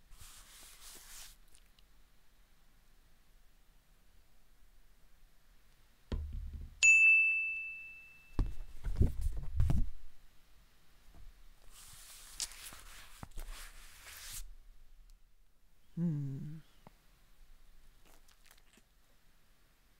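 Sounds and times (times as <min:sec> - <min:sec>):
scratchy hiss: 0:00.0 - 0:02.0, 0:11.6 - 0:14.6
low thumps: 0:06.1 - 0:06.8
bright ding: 0:06.8 - 0:08.5.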